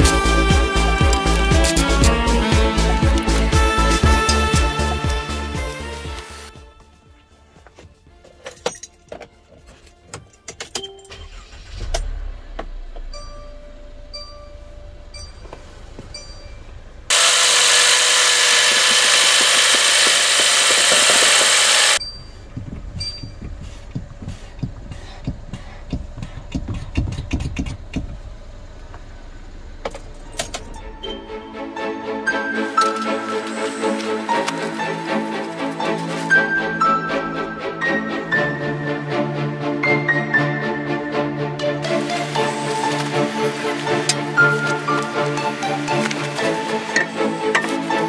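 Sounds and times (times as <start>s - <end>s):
van engine starting and running: 0.0s - 6.6s, 8.0s - 39.6s, 40.5s - 48.0s
keys jangling in ignition: 8.3s - 9.2s, 9.9s - 12.2s, 29.8s - 31.0s
loud even hiss: 41.8s - 48.0s.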